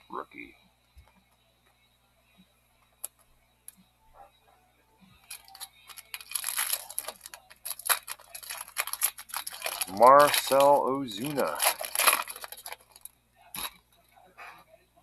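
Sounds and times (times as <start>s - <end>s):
foil wrapper tearing and crinkling: 5.2s - 13.8s.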